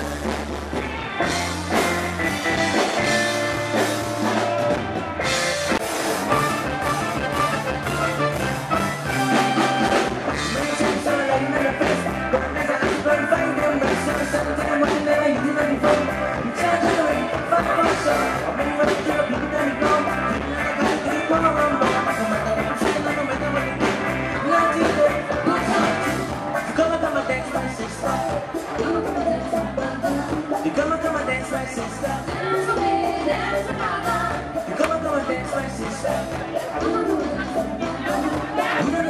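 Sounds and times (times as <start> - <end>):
reggae band playing: 0.0 - 39.0
man singing into microphone: 10.3 - 39.0.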